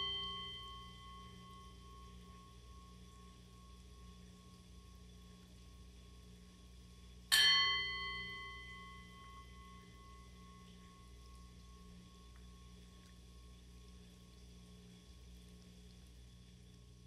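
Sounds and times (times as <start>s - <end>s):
singing bowl ringing: 0.0s - 4.7s, 7.3s - 13.1s.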